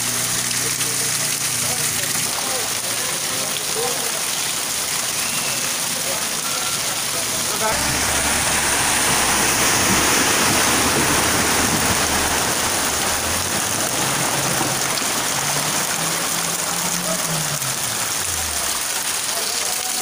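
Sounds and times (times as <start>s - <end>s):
car driving through flood water: 0.0s - 20.0s
floodwater rushing along a street: 0.0s - 20.0s
heavy rain: 0.0s - 20.0s.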